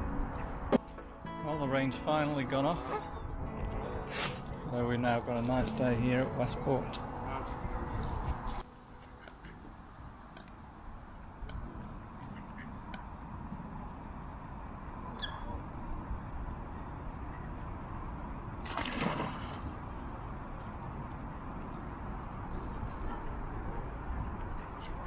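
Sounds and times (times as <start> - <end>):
splash of diving bird: 18.6 - 19.9.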